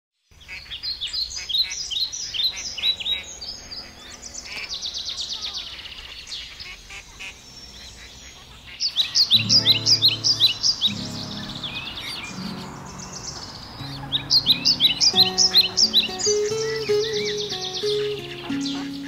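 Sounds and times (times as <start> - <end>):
small songbirds singing: 0.2 - 19.0.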